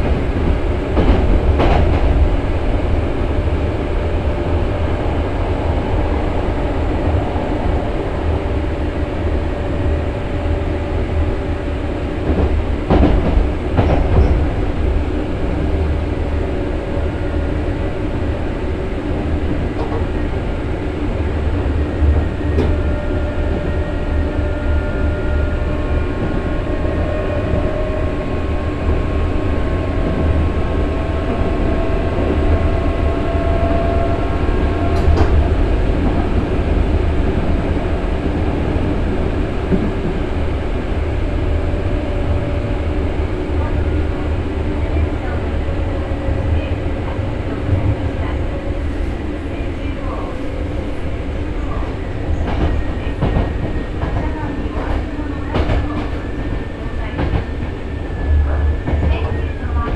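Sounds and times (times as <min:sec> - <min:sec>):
train wheels and motors rumbling: 0:00.0 - 0:59.9.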